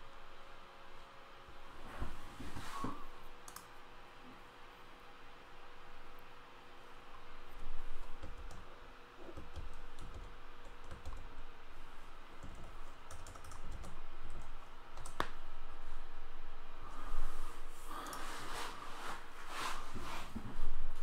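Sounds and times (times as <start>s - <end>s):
taps and thumps on keyboard: 9.2s - 11.2s.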